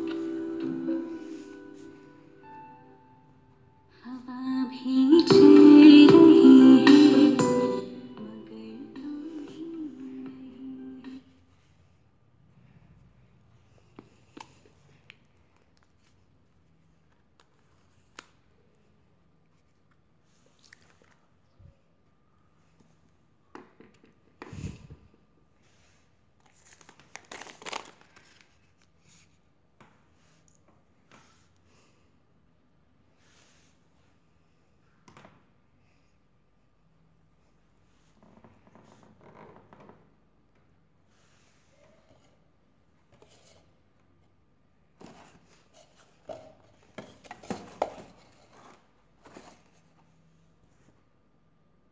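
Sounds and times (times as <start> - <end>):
plastic packaging crinkling: 26.4 - 29.0.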